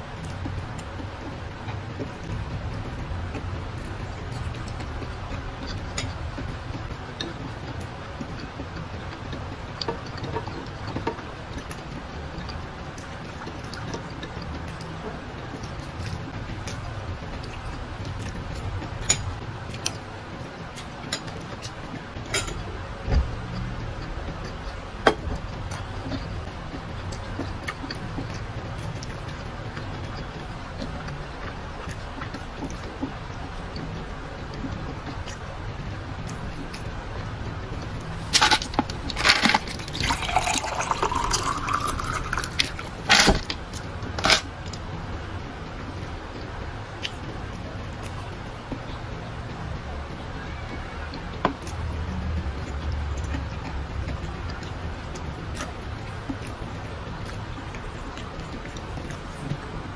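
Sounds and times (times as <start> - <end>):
lip smacks and chewing: 51.6 - 59.6.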